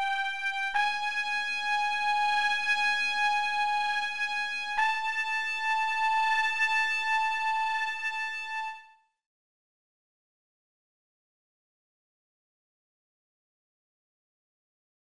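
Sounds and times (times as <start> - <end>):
synthesized cornet notes: 0.0 - 8.8.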